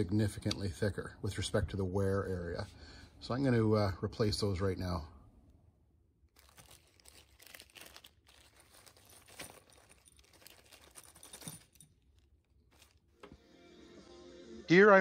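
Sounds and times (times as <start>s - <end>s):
plastic bag crinkling: 6.2s - 13.2s.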